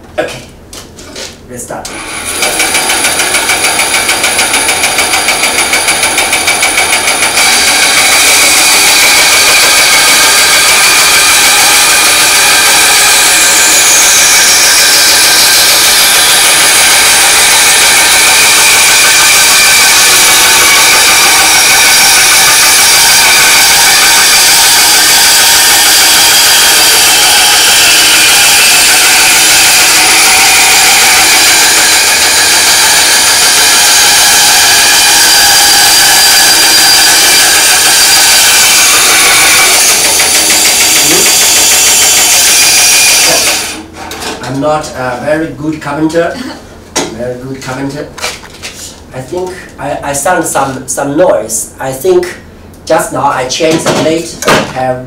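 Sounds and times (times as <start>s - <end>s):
band saw cutting wood: 1.9s - 44.6s
high tone sliding down: 7.6s - 43.7s.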